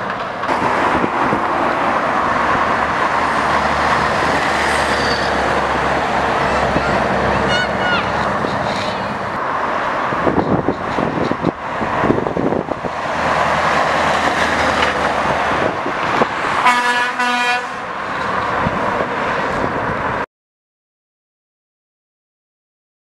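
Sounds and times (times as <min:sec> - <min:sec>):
truck driving past: 0:00.0 - 0:20.3
truck horn toots: 0:06.4 - 0:09.2, 0:16.6 - 0:17.9.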